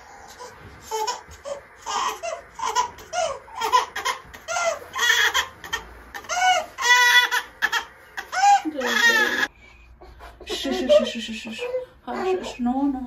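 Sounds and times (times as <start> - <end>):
baby vocalizing: 0.1 - 9.5.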